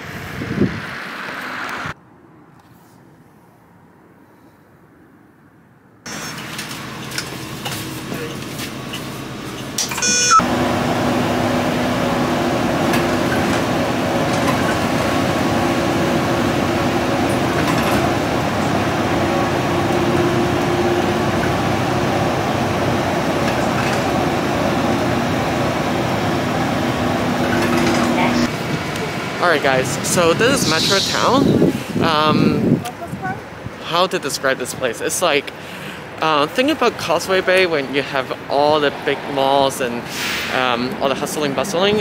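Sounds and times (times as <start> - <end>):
bus engine drone: 0.0 - 42.0
brief high-pitched tone: 9.9 - 10.5.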